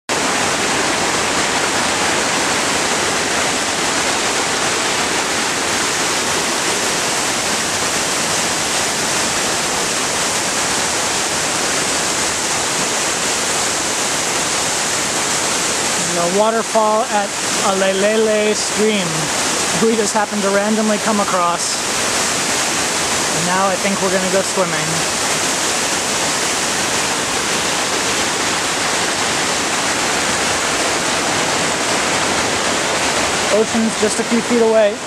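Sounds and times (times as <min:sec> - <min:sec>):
rushing water: 0:00.1 - 0:35.0.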